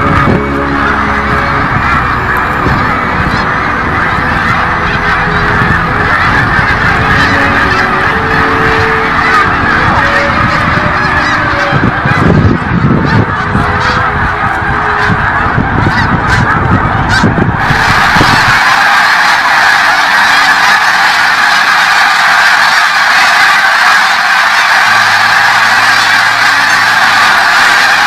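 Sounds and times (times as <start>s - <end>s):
low rumble: 0.0s - 18.5s
geese honking: 0.0s - 28.0s.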